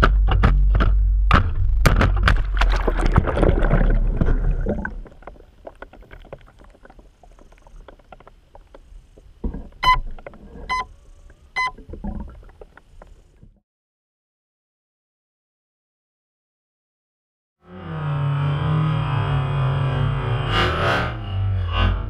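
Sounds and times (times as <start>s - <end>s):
muffled underwater crackling clicks: 0.0s - 13.6s
electronic beeps: 9.8s - 10.1s, 10.7s - 10.9s, 11.5s - 11.8s.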